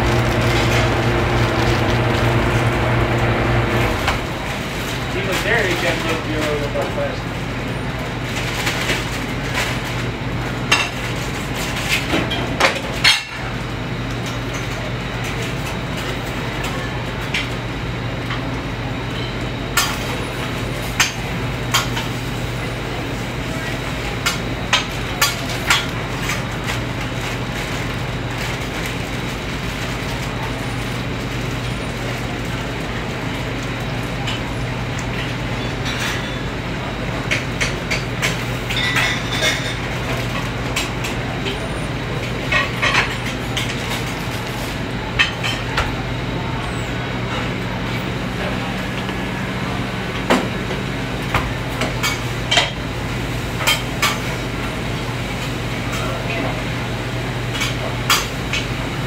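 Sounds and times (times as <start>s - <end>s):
low machine hum: 0.0s - 59.0s
metal utensils and pans clinking: 37.9s - 40.9s.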